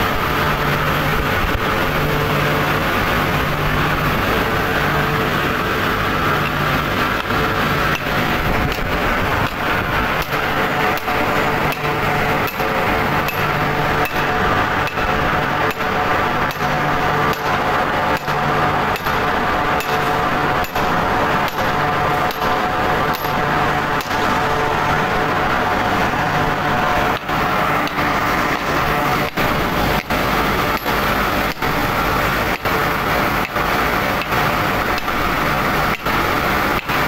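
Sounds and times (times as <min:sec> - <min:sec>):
steady machinery hum: 0:00.0 - 0:37.0
hammer striking steel: 0:10.2 - 0:15.9, 0:16.5 - 0:24.2, 0:27.2 - 0:31.8.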